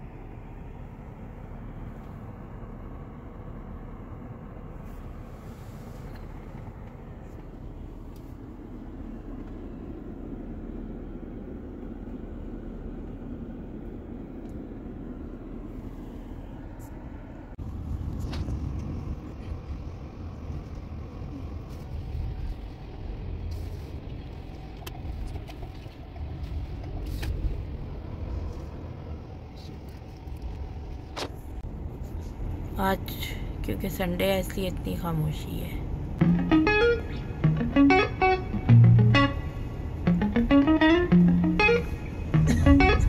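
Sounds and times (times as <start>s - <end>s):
car cabin engine and tyre rumble: 0.0s - 43.0s.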